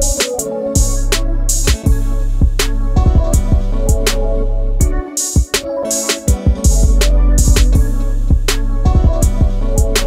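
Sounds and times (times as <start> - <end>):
bass: 0.0 - 0.2, 0.8 - 5.0, 6.6 - 10.0
steady drum beat: 0.0 - 4.2, 4.8 - 10.0.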